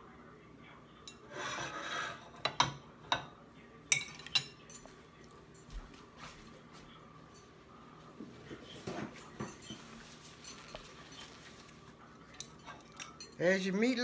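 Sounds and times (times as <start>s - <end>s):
fork scraping a plate: 1.1s - 2.6s
fork clinking on plate: 12.3s - 13.4s.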